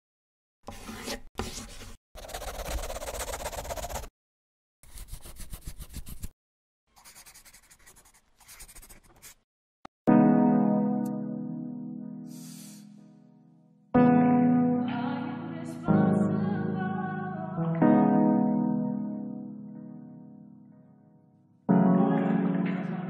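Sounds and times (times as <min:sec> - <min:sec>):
pencil scribbling on paper: 0:00.7 - 0:04.1, 0:04.8 - 0:06.3, 0:06.9 - 0:09.4
piano chord: 0:10.1 - 0:12.4, 0:13.0 - 0:23.0.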